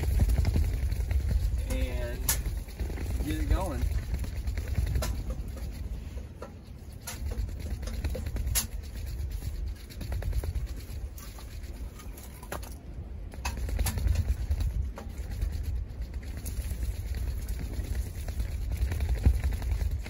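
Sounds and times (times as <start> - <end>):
sharp clicks and scratches: 0.0 - 20.0
wind buffeting microphone: 0.0 - 20.0.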